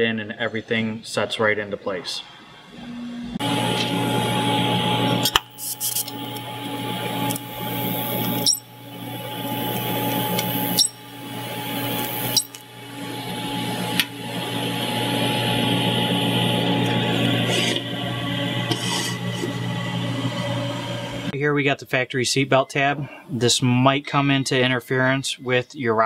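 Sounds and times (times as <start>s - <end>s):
welding arc buzzing: 3.2s - 21.3s.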